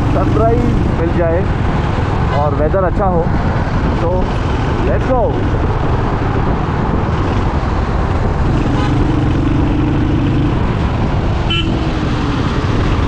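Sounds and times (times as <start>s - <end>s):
motorcycle engine running: 4.5s - 13.0s
vehicle horn: 8.6s - 9.1s, 11.5s - 11.9s.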